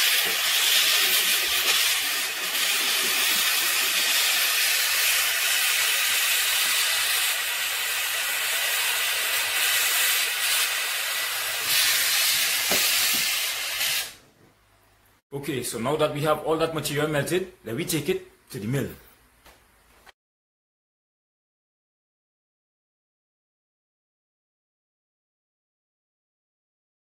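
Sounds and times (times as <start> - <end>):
gas torch flame hissing: 0.0 - 14.3.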